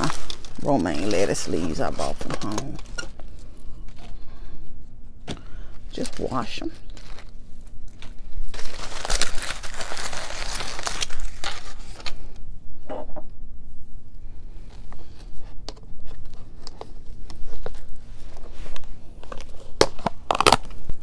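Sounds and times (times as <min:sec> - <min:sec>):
aluminium foil crinkling: 0:00.0 - 0:04.2, 0:05.8 - 0:12.4, 0:16.2 - 0:21.0.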